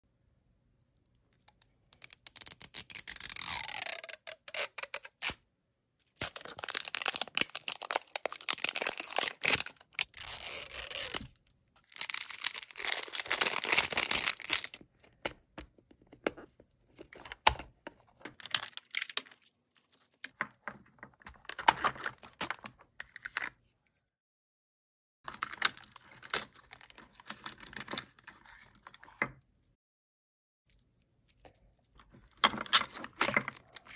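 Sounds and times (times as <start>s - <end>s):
plastic wrapping crinkling and tearing: 2.0s - 5.3s, 6.2s - 14.8s, 25.3s - 28.0s
paper wrappers rustling: 6.2s - 14.8s.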